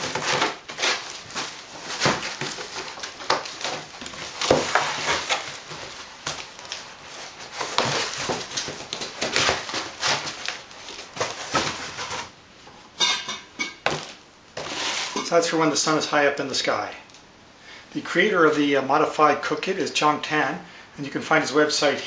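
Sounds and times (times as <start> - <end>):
cardboard scraping and rustling: 0.0 - 12.3, 13.9 - 15.3.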